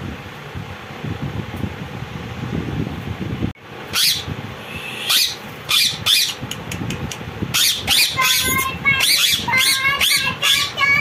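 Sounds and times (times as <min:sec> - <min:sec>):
parakeets screeching: 0:03.9 - 0:06.4, 0:07.5 - 0:11.0.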